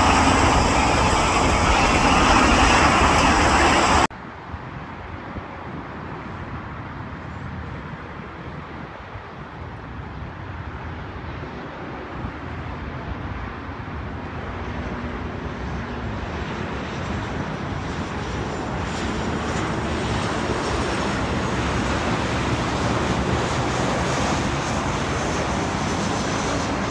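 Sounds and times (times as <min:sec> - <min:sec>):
jet engines rumbling: 0:00.0 - 0:04.1, 0:13.8 - 0:26.9
thin high whine: 0:00.0 - 0:04.1.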